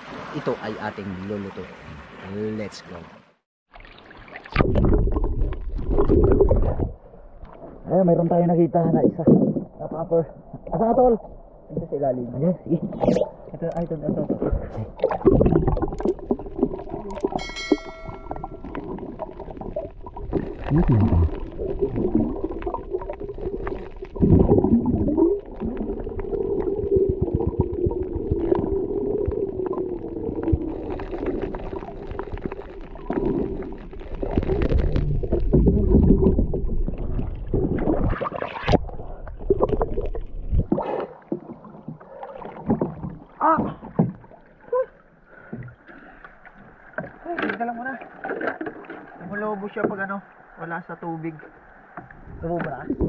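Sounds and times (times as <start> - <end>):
water splashing beside boat: 0.0 - 7.8, 29.4 - 50.6
underwater rumble and bubbling: 3.7 - 53.0.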